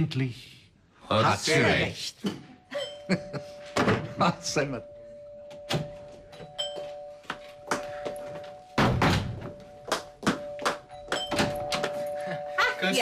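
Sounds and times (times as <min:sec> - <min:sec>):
footsteps on wooden stage: 0:06.8 - 0:12.0.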